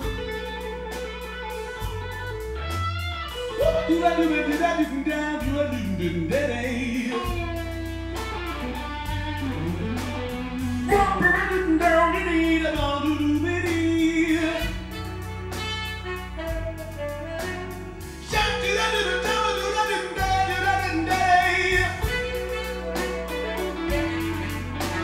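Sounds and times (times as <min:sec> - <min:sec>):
drums: 0:00.0 - 0:25.0
electric guitar: 0:00.0 - 0:25.0
man singing into a microphone: 0:03.6 - 0:07.4, 0:10.9 - 0:14.8, 0:18.2 - 0:22.4.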